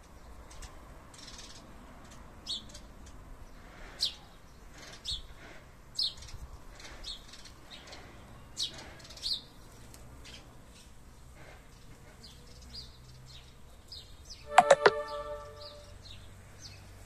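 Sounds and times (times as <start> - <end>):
faint outdoor background noise: 0.0 - 17.0
songbird chirping: 12.6 - 16.8.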